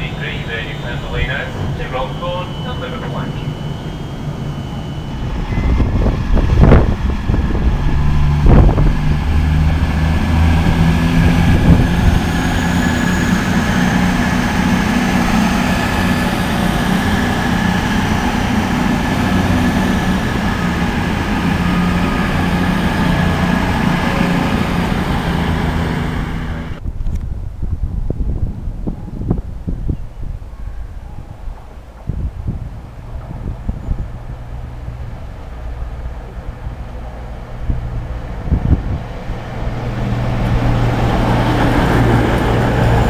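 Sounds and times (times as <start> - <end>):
diesel train engines humming: 0.0 - 26.8, 30.1 - 43.0
wind on microphone: 3.8 - 43.0.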